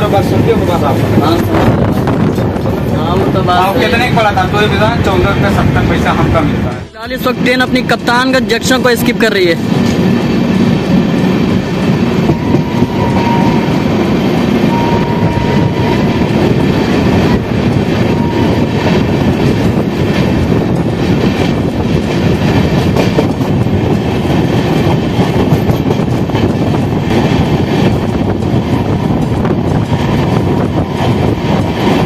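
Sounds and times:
train wheels rumbling on rail: 0.0s - 32.0s.

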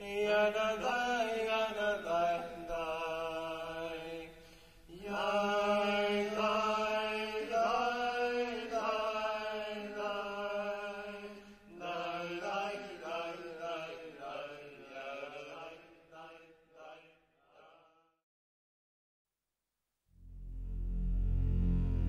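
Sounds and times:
steady drone: 20.2s - 22.0s.

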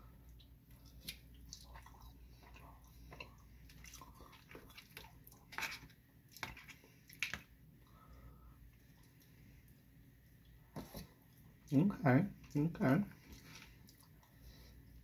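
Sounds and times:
person chewing fries: 0.1s - 7.5s, 12.4s - 15.0s.

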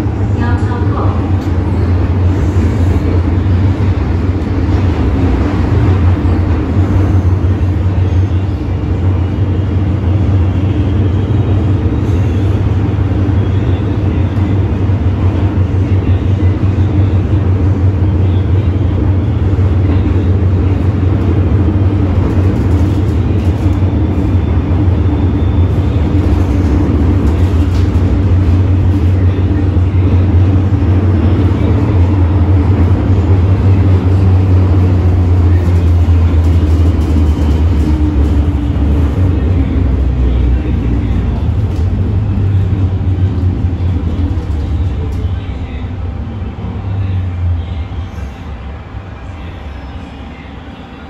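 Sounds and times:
train interior rumble: 0.0s - 51.0s.

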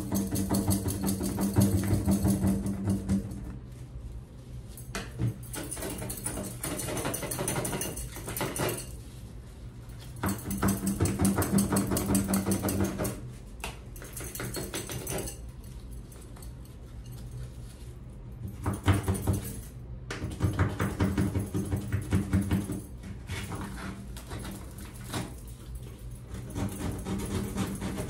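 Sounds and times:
scrub brush scrubbing tile: 26.3s - 28.0s.

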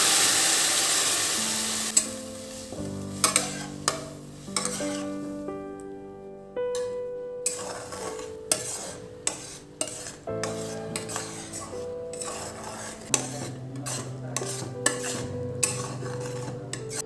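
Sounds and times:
background music: 1.3s - 17.0s
metal spatula scraping pan: 3.1s - 5.3s, 6.7s - 17.0s
spatula clinking against pan: 3.2s - 5.0s, 6.7s - 17.0s.

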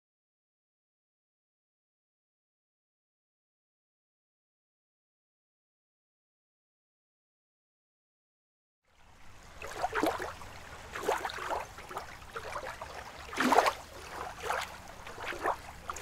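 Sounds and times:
water splashing and lapping: 9.0s - 16.0s.

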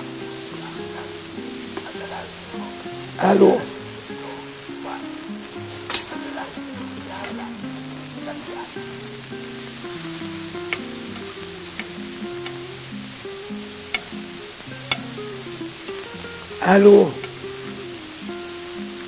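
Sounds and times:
food sizzling in frying pan: 0.0s - 19.0s
soft background music: 0.0s - 19.0s
utensil clicking against pan: 10.6s - 12.6s, 13.9s - 14.2s, 14.9s - 15.2s.

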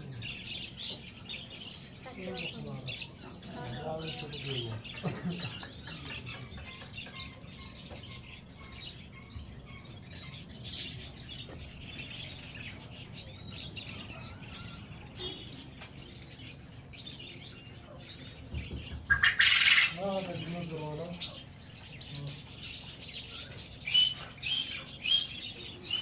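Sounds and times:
birds chirping and twittering: 0.0s - 26.0s
loud harsh bird call: 18.8s - 20.1s.

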